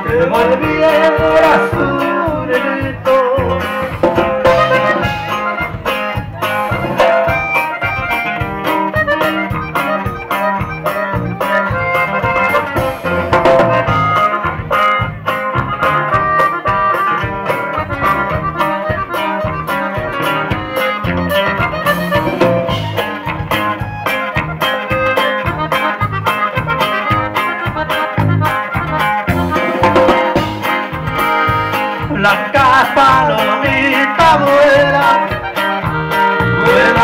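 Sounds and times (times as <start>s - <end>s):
accordion melody: 0.0s - 37.0s
bass and drum dance beat: 0.0s - 37.0s
guitars: 0.0s - 37.0s.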